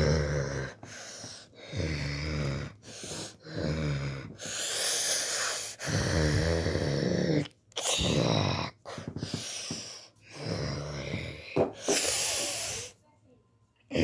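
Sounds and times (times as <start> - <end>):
low rasping growls: 0.0 - 0.8, 1.6 - 4.5, 5.8 - 9.1, 10.3 - 11.6
breathy hiss: 0.8 - 13.0.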